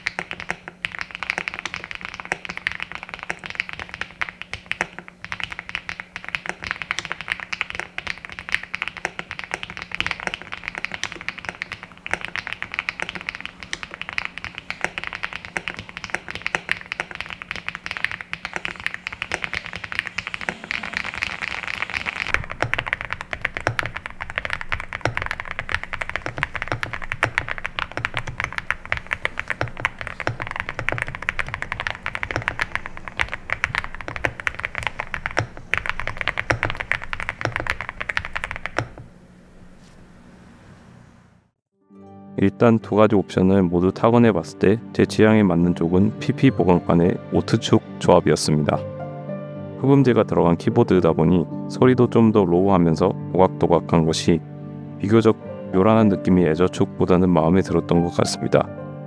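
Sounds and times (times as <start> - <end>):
mechanical keyboard typing: 0.0 - 39.1.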